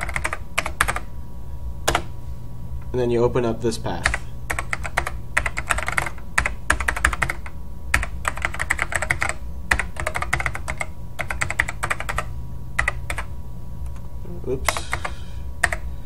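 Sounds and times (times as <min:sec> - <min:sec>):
computer keyboard typing: 0:00.0 - 0:01.1, 0:01.9 - 0:02.1, 0:04.0 - 0:13.3, 0:14.7 - 0:15.9.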